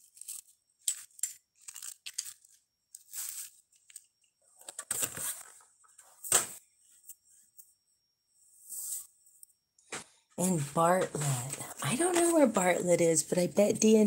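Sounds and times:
packaging rustling: 0.0s - 5.6s.

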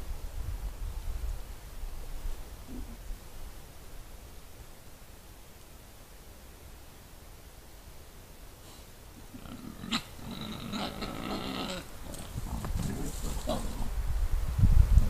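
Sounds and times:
wild boar squealing and grunting: 9.2s - 14.0s.

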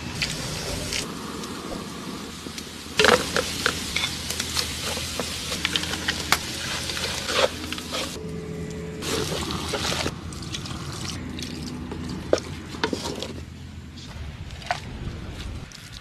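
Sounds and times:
onions sizzling in oil: 0.2s - 8.2s
wooden spatula scraping pan: 3.0s - 8.2s.

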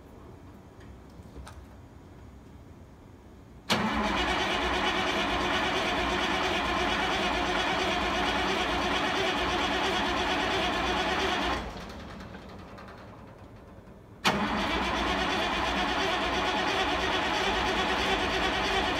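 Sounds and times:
diesel truck engine running: 3.8s - 13.4s, 14.2s - 18.9s.

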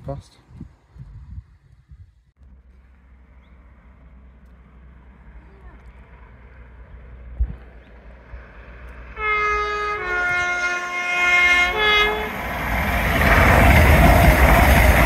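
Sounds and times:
rush of approaching train: 6.1s - 15.0s
two-tone train horn: 9.2s - 12.4s.

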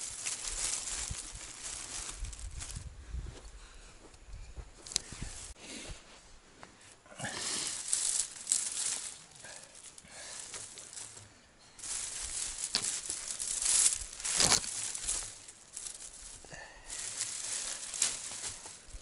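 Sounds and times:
branches snapping: 0.0s - 2.8s, 4.8s - 5.5s, 7.4s - 11.2s, 11.8s - 19.0s
branches rustling and crackling: 0.0s - 3.4s, 4.1s - 5.6s, 6.7s - 19.0s.

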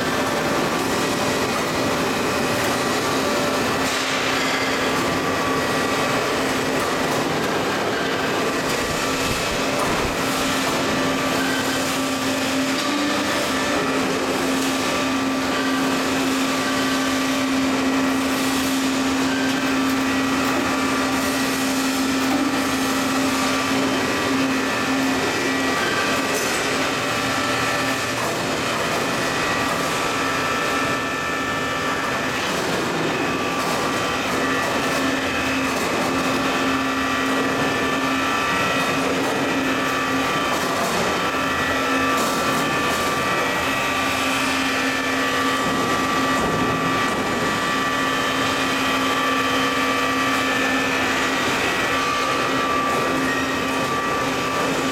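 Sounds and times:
thin high machine whines: 0.0s - 54.9s.

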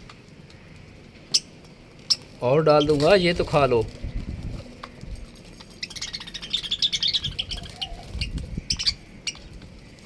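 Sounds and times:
budgerigars chattering: 1.3s - 3.4s, 5.8s - 9.5s
high bird chirps: 5.7s - 9.5s.

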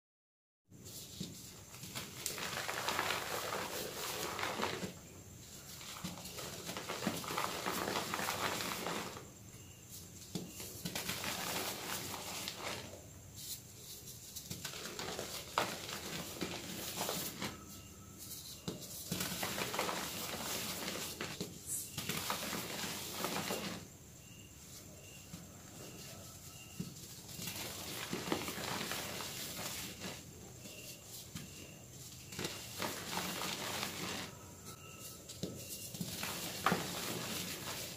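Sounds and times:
hands crushing chalk lumps: 1.2s - 5.0s, 5.8s - 9.3s.

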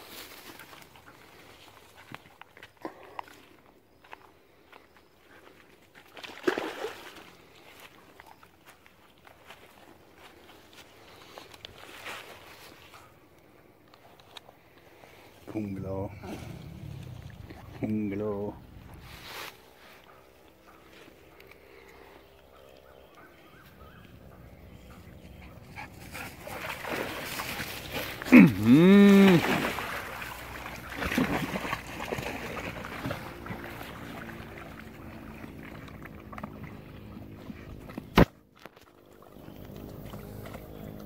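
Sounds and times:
dogs splashing in water: 5.8s - 10.0s, 23.7s - 41.0s.

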